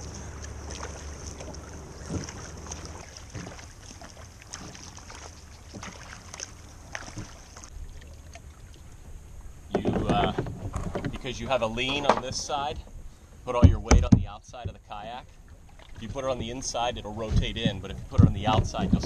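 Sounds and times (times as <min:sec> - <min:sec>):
paddle splashing through water: 0:00.0 - 0:09.0, 0:14.6 - 0:19.0
water lapping: 0:00.0 - 0:19.0.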